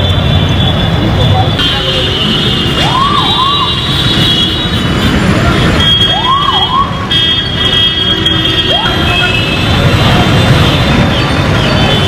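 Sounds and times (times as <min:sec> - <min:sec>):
traffic noise: 0:00.0 - 0:12.0
wailing siren-like tone: 0:02.8 - 0:03.9, 0:05.8 - 0:07.0, 0:08.6 - 0:09.3.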